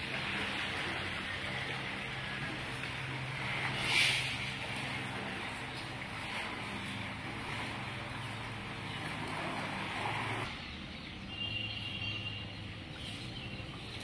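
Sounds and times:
splashing water: 0.0s - 10.5s.

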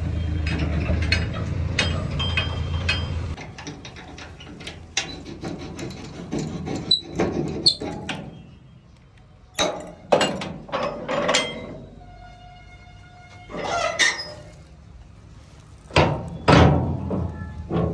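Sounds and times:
metal clanks: 0.2s - 8.5s, 9.6s - 12.0s, 15.9s - 17.9s
metal latch clicks and knocks: 0.5s - 8.3s, 9.2s - 11.8s.

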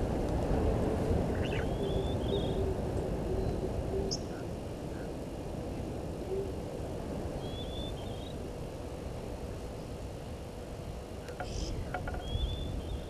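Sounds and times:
faint bird chirps: 1.3s - 2.7s, 7.4s - 8.4s, 11.2s - 13.0s.

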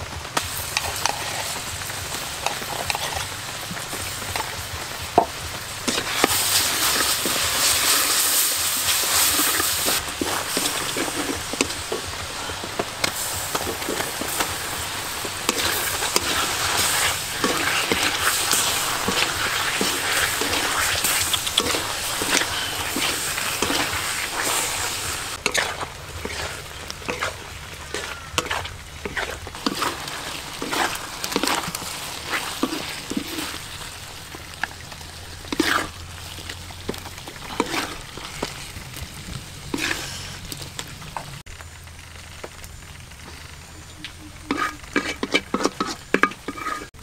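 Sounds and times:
eggs sizzling in sauce: 0.0s - 47.0s
wooden spatula scraping a pan: 5.9s - 33.8s, 35.5s - 38.7s, 39.7s - 40.6s, 44.3s - 47.0s.

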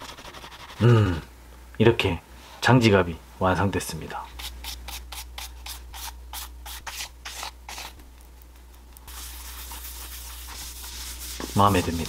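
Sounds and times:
brush sweeping over leather: 9.1s - 12.0s
cloth rubbing leather: 9.1s - 12.0s.

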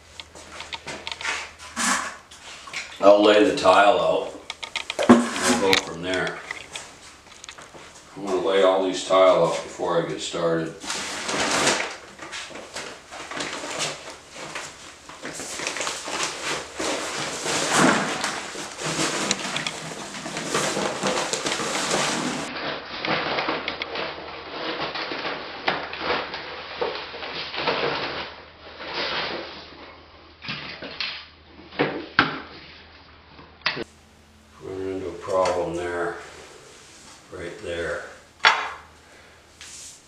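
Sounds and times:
scraping: 0.0s - 9.8s, 10.8s - 23.4s
paper sack rustling: 0.3s - 29.9s, 34.6s - 38.3s
powder pouring into bucket: 15.1s - 29.5s.

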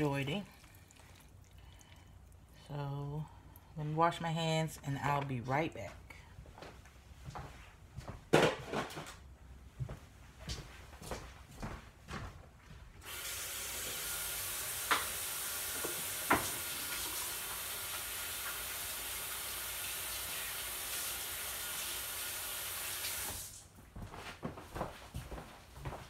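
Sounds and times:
tap water running: 0.0s - 2.5s, 13.0s - 23.6s.

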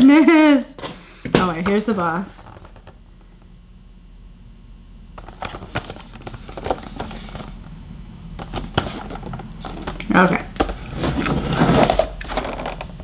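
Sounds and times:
cardboard packaging crackles and rustles: 5.2s - 7.6s, 8.4s - 13.0s.

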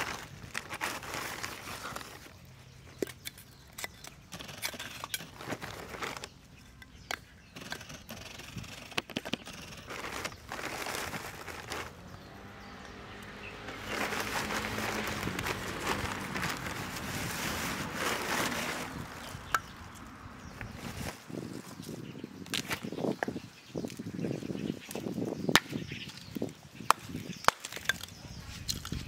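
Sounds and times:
charcoal clicking and knocking: 26.9s - 29.0s.

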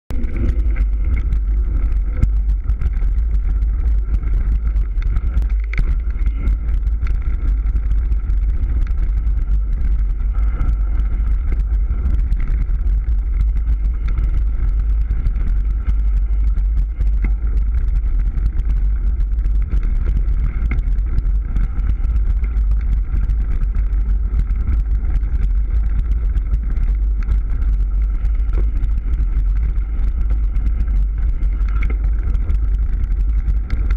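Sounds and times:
wind and tyre rumble: 0.0s - 33.9s
bike frame rattling and clicking: 0.1s - 33.9s.

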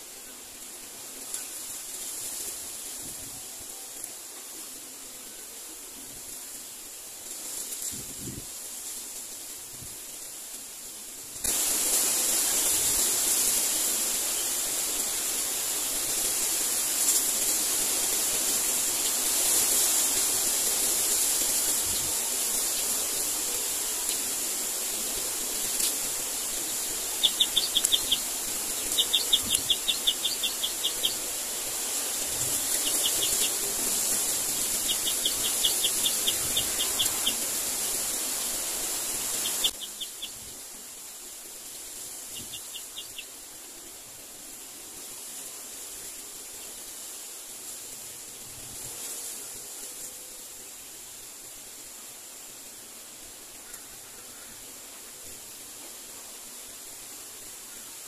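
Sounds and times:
high-pitched outdoor hiss: 0.0s - 58.0s
rapid ticking calls: 25.1s - 37.7s, 39.2s - 40.4s, 42.3s - 43.3s.

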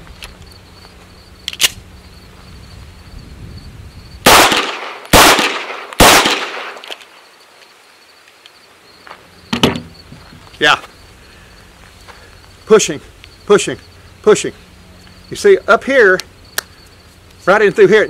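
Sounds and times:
pistol shots echoing: 4.3s - 6.9s.

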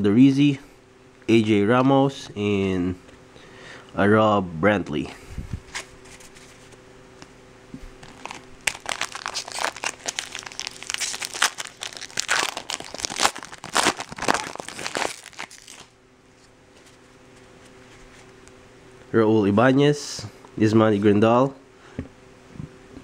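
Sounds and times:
foil wrapper crackling: 8.0s - 16.0s.

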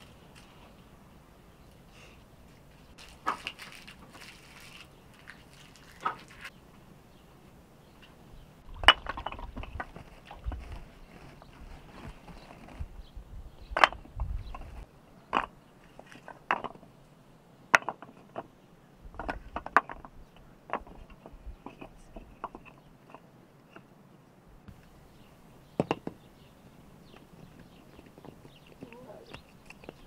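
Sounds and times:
firewood pieces knocking together: 3.0s - 6.5s, 8.8s - 10.7s, 13.7s - 14.7s, 15.3s - 16.9s, 17.7s - 18.5s, 19.1s - 23.2s, 25.8s - 26.2s.

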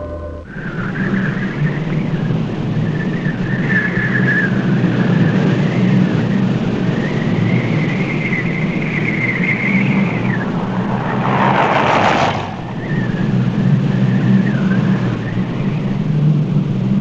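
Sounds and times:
high wavering whistle: 0.0s - 11.5s, 12.2s - 16.3s
truck engine: 0.0s - 17.0s
truck passing close: 0.0s - 17.0s
wind noise: 0.0s - 17.0s.

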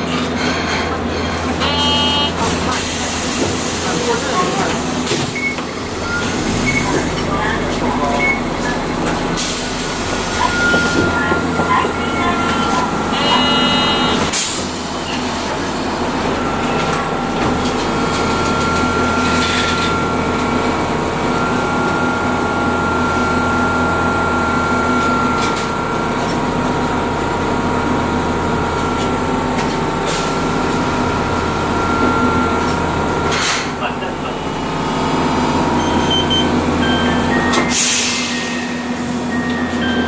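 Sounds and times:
tram motor whine: 0.0s - 40.0s
wheel and rail rumble: 0.0s - 40.0s
short high-pitched tone: 1.6s - 2.4s.

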